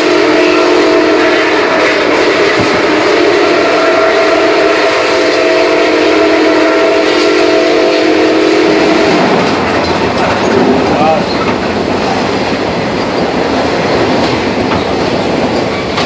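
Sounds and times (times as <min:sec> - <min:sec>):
steam whistle blast: 0:00.0 - 0:09.4
moving train rumble: 0:00.0 - 0:16.0.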